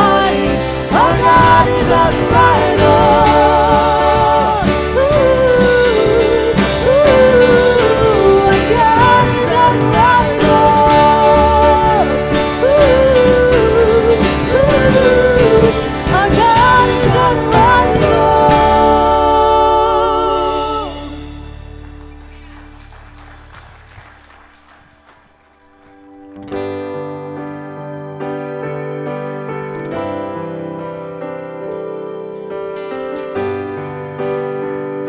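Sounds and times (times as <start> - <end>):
woman singing with vibrato: 0.0 - 21.4
drums: 0.0 - 27.6
keyboard: 0.0 - 35.0.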